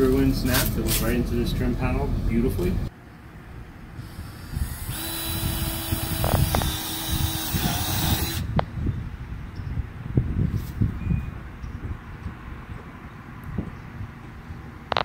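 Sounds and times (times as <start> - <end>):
cordless drill running: 4.0 - 8.5
drill click: 4.6 - 8.6.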